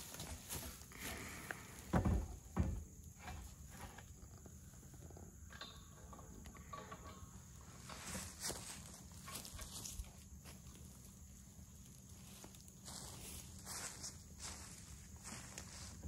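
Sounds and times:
heavy thumps of cylinder set down: 0:01.9 - 0:03.4.

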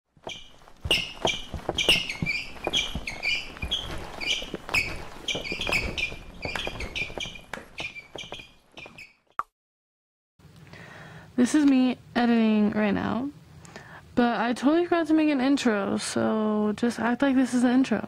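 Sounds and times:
stomps: 0:00.2 - 0:09.0.

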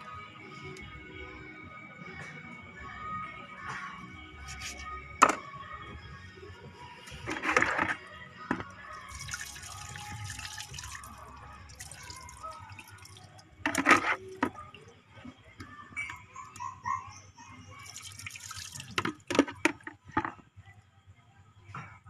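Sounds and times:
water splashing into a basin: 0:09.0 - 0:14.8, 0:17.8 - 0:19.8.

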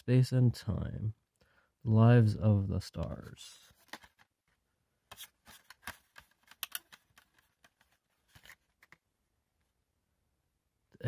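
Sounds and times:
plastic disc trays clicking: 0:05.5 - 0:09.0.

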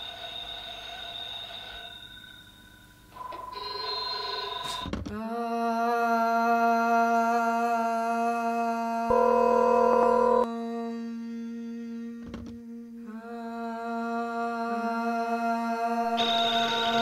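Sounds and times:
telephones ringing: 0:03.2 - 0:04.9, 0:09.1 - 0:10.5
steady drone from phone: 0:09.1 - 0:10.5, 0:16.0 - 0:17.0.

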